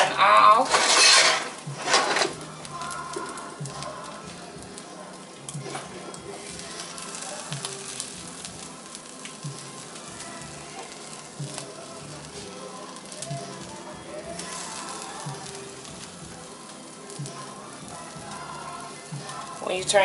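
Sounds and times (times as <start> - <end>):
burger patty sizzling in a skillet: 0.0 - 20.0.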